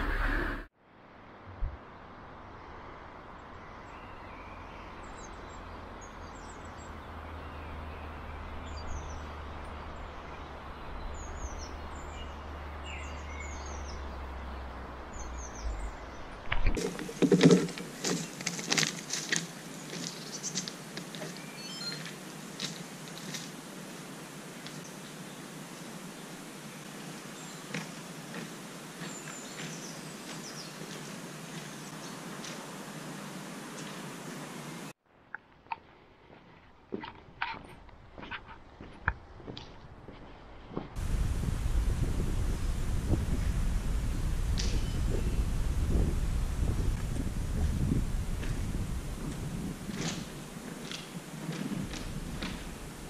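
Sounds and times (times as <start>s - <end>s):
small birds chirping: 3.4s - 34.9s, 42.1s - 53.0s
outdoor hiss: 16.6s - 35.0s, 41.0s - 53.0s
footsteps on gravel: 16.7s - 23.6s, 26.9s - 34.1s, 47.2s - 53.0s
low rumble: 41.0s - 50.5s.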